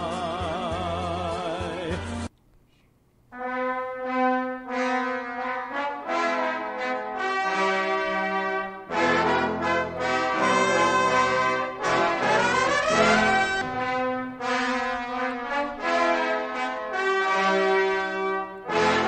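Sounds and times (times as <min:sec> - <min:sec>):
brass long-held notes: 0:03.3 - 0:19.0
brass rising slide: 0:07.4 - 0:19.0.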